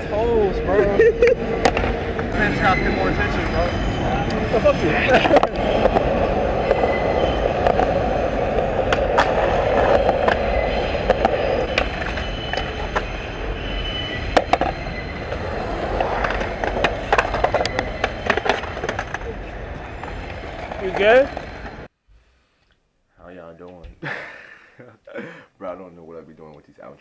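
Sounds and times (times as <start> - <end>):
skateboard wheels rolling on concrete: 0.0 - 21.9
skateboard clacking on ground: 1.6 - 2.4, 5.1 - 13.2, 14.3 - 21.9.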